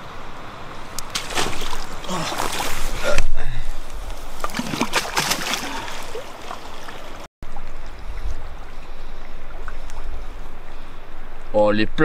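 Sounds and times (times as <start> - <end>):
water splashing and trickling: 0.6 - 11.5.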